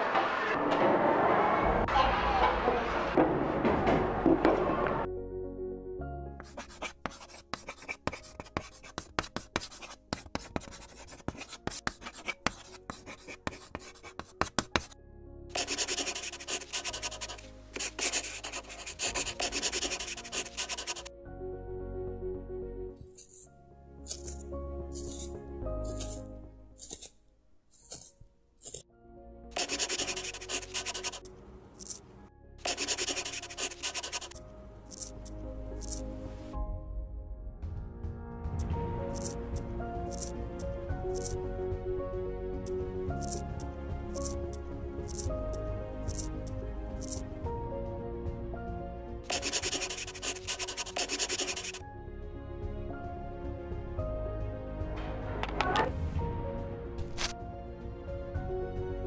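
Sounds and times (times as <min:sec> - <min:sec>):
soft background music: 0:02.8 - 0:59.0
chalk scratching: 0:06.4 - 0:21.1, 0:25.0 - 0:25.3, 0:25.9 - 0:26.2, 0:26.8 - 0:27.2, 0:27.8 - 0:28.8, 0:29.6 - 0:32.0, 0:32.6 - 0:36.0, 0:40.1 - 0:40.3, 0:41.1 - 0:41.4, 0:46.1 - 0:46.3, 0:47.0 - 0:47.2, 0:49.3 - 0:51.8.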